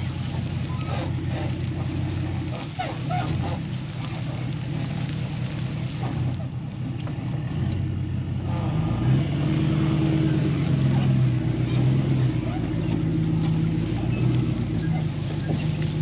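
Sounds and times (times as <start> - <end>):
hydraulic bale bed spreading: 0.0 - 16.0
truck engine running under load: 0.0 - 16.0.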